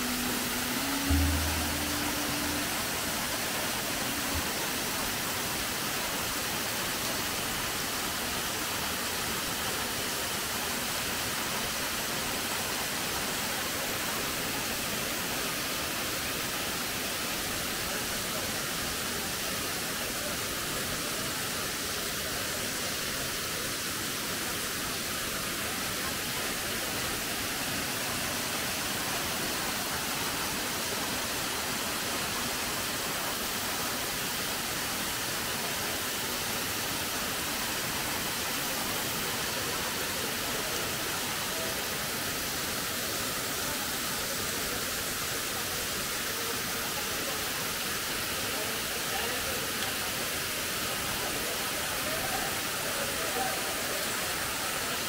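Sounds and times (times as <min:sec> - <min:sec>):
waterfall splashing: 0:00.0 - 0:55.0.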